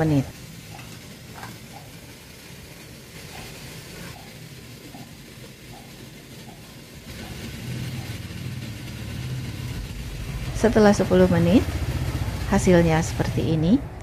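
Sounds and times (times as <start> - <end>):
water boiling hiss: 0.0 - 14.0
low steady hum: 6.5 - 14.0.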